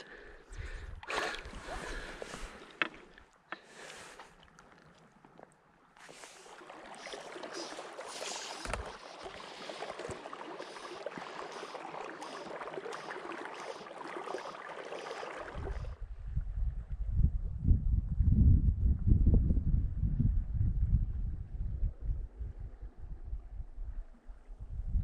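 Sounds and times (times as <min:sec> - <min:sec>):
river current rushing and splashing: 0:06.0 - 0:15.9
wind buffeting microphone: 0:15.5 - 0:25.0.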